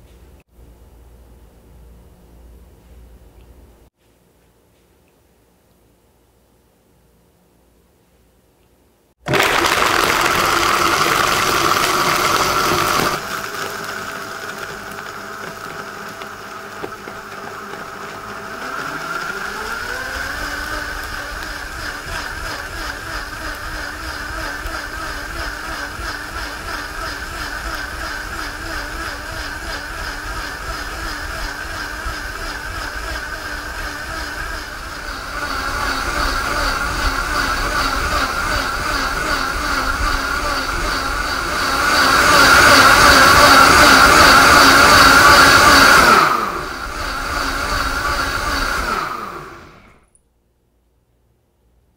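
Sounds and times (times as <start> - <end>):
blender motor whine: 9.2 - 50.1.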